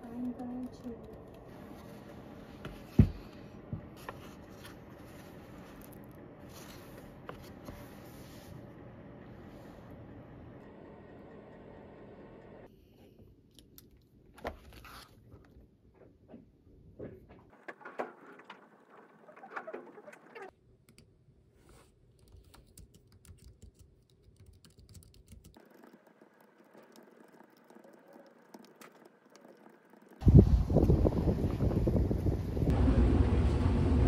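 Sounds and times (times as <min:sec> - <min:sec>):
computer keyboard typing: 0:22.2 - 0:30.2.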